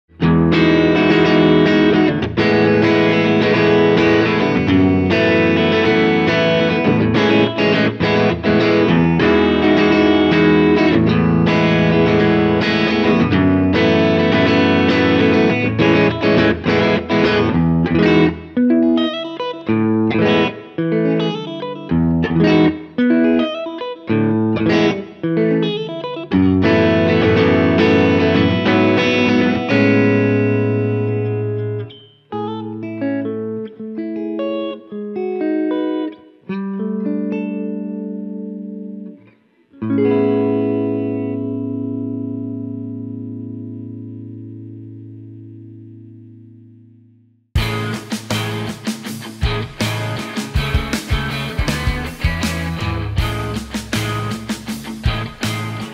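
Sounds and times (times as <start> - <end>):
electric guitar strumming chords: 0.1 - 55.9.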